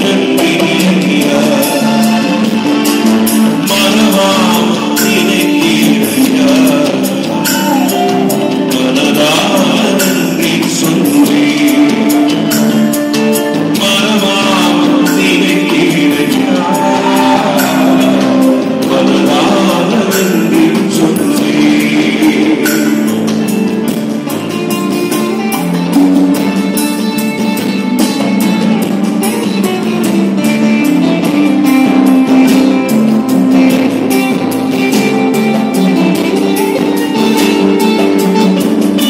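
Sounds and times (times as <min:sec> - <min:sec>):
man singing: 0:00.0 - 0:23.6
live band playing: 0:00.0 - 0:39.0
steady drum beat: 0:00.0 - 0:39.0.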